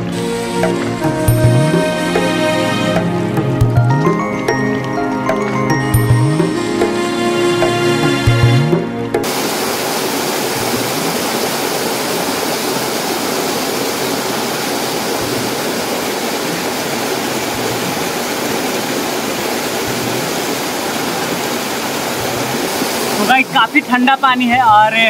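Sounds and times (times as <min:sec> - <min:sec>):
small waterfall rushing: 0:09.2 - 0:25.0.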